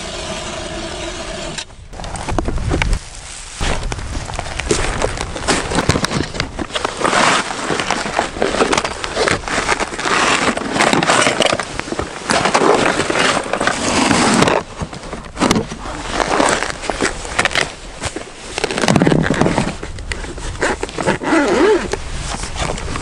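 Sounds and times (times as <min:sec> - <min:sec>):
bag pulled from plastic sled: 0:00.0 - 0:23.0
gear rustling and clattering: 0:02.0 - 0:23.0.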